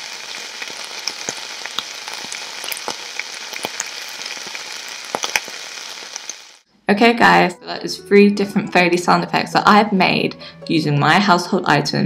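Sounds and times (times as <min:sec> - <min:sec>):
bacon sizzling in a pan: 0:00.0 - 0:06.6
crackling pops: 0:00.0 - 0:06.6.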